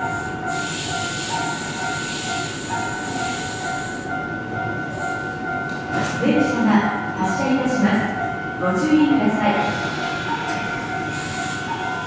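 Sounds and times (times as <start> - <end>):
train hiss: 0.0 - 4.1, 9.5 - 12.0
electric train two-note whine: 0.0 - 12.0.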